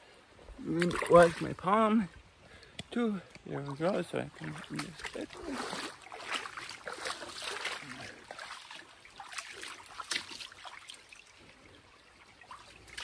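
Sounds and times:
creek water trickling: 0.0 - 13.0
small water splashes: 0.5 - 13.0.

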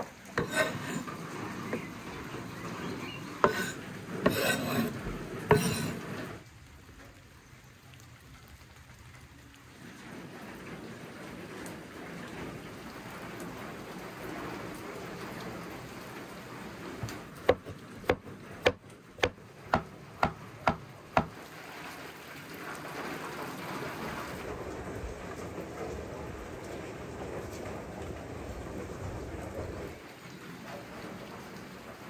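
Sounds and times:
steady rain: 0.0 - 32.0
knife chopping on wooden board: 0.4 - 1.0, 3.4 - 6.0, 17.4 - 21.4.

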